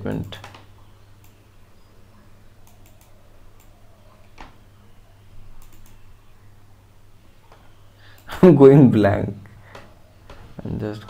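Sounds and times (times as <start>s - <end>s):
steady low hum: 0.0s - 11.0s
computer mouse clicks: 0.2s - 1.4s, 2.6s - 4.6s, 5.6s - 6.1s, 7.5s - 8.3s.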